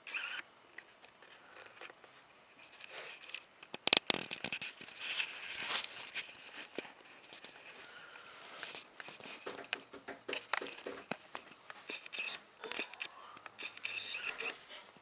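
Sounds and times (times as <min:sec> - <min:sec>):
rustling: 0:04.1 - 0:12.5
wooden shelf knocks and clicks: 0:09.4 - 0:11.2.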